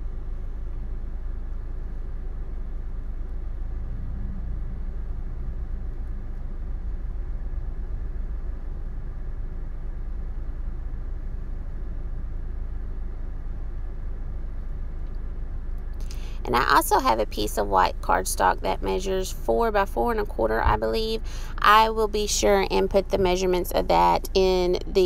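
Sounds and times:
low rumble: 0.0 - 25.0.

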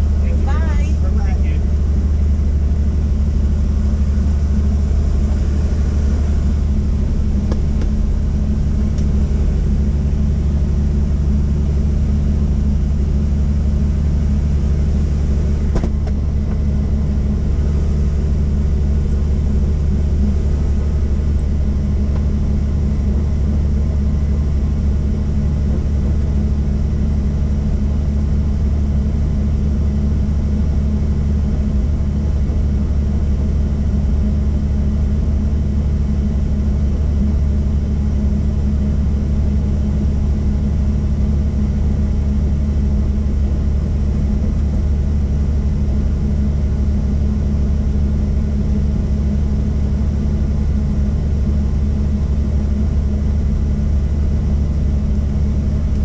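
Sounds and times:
helicopter cabin drone: 0.0 - 56.0.

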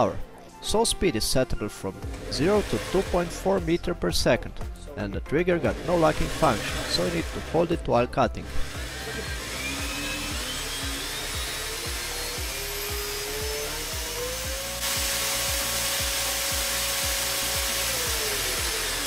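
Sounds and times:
background music with steady beat: 0.0 - 19.0
metal bandsaw motor whining: 2.0 - 3.6, 5.6 - 7.7, 8.4 - 19.0.

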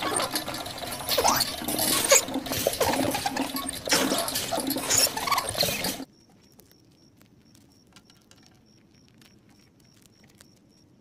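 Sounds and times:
hamster wheel spinning and clattering: 0.0 - 6.1
hamster squeaks: 0.0 - 6.8.

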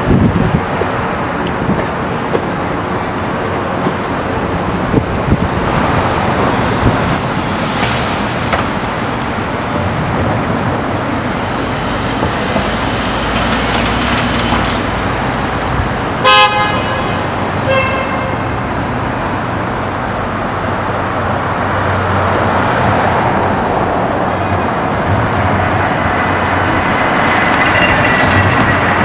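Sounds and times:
cars driving by: 0.0 - 29.0
car horn honk: 16.2 - 18.5.

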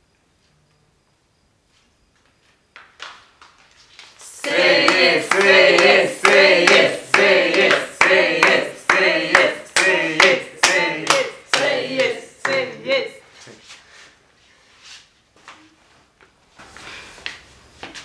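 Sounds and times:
people singing along: 4.2 - 13.3
people clapping in time: 4.3 - 13.0.

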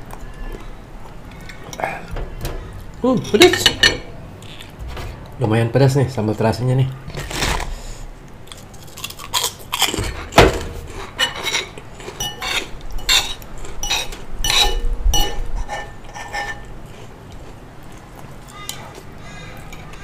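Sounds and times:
spoon and fork clinking on bowl: 11.2 - 16.7.

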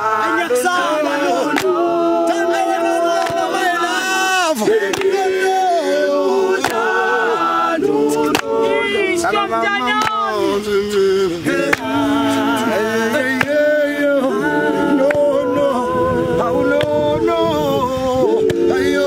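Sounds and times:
male choir singing in harmony: 0.0 - 19.0
hand claps: 1.5 - 1.8, 3.2 - 3.5, 4.8 - 5.3, 6.6 - 6.9, 8.3 - 8.6, 10.0 - 10.2, 11.7 - 11.9, 13.4 - 13.6, 15.0 - 15.3, 16.8 - 17.0.

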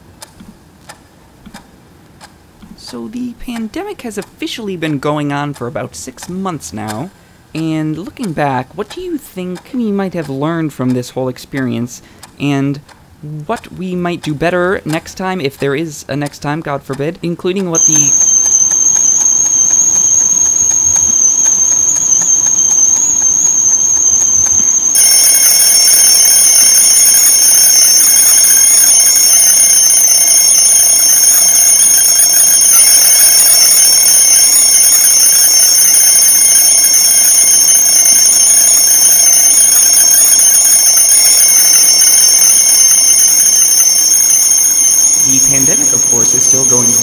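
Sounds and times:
kettle whistling: 17.8 - 47.0.

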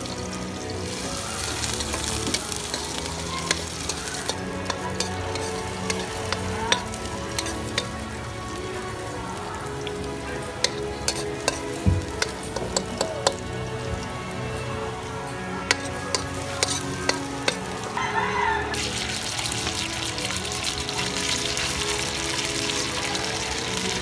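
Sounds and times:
food sizzling in hot oil: 0.0 - 13.4, 15.7 - 24.0
spatula scraping a wok: 1.6 - 7.9, 15.7 - 17.8.

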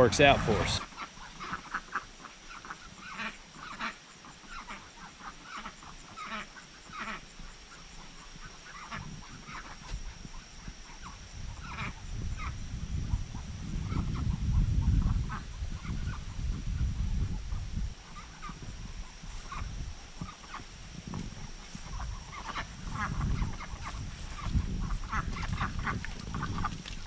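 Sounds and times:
low rumble: 0.0 - 0.8
ducks quacking: 0.0 - 16.3, 18.0 - 27.0.

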